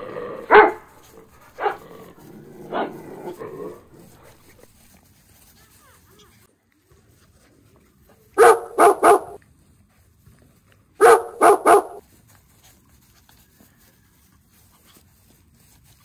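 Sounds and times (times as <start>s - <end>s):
dog barking: 0.4s - 1.8s, 8.4s - 9.4s, 11.0s - 12.0s.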